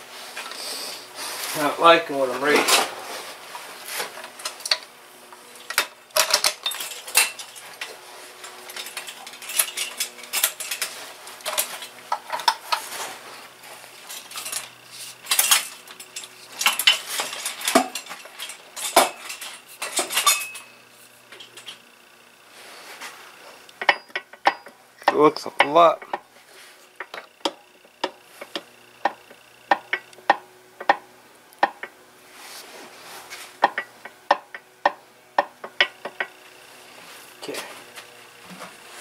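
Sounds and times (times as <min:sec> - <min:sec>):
metal tools clinking and clanking: 0:05.6 - 0:13.0, 0:14.0 - 0:21.8, 0:23.8 - 0:26.2.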